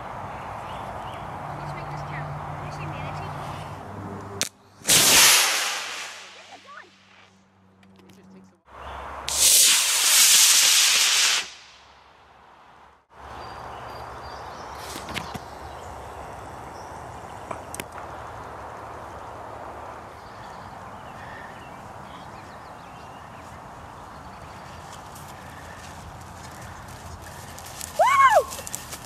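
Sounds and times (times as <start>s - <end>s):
rocket motor exhaust rushing: 4.8s - 7.2s, 9.3s - 11.9s.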